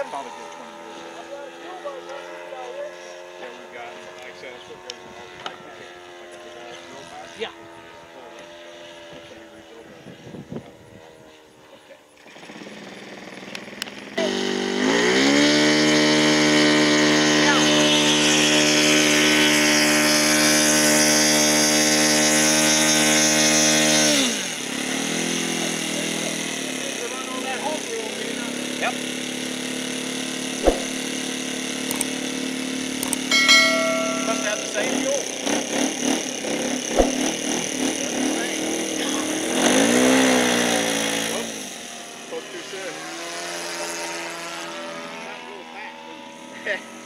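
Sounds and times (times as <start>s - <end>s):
model airplane engine buzzing: 0.0s - 47.0s
sharp knock: 30.6s - 30.9s.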